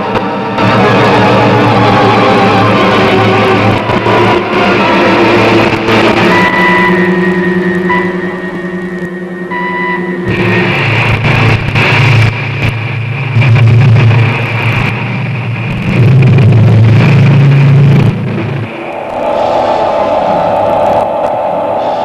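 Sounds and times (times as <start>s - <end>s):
rocket engine launch roar: 0.0s - 22.0s.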